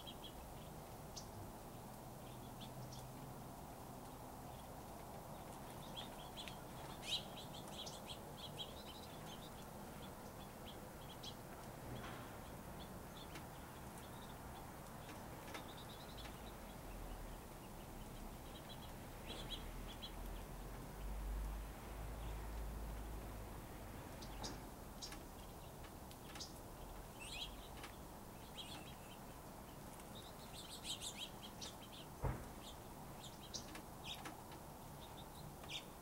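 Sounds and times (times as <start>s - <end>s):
steady background hiss: 0.0s - 36.0s
finches chirping: 5.4s - 11.4s, 24.2s - 34.3s.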